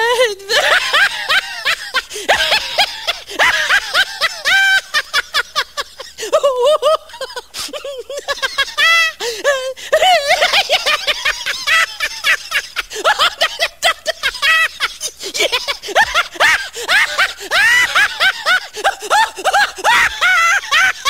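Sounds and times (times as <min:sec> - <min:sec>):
high-pitched human laughter: 0:00.0 - 0:21.0.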